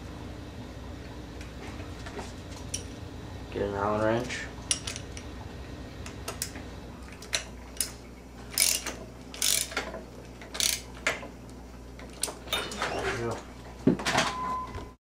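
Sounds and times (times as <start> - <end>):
wrench clicking and scraping: 7.2 - 10.9.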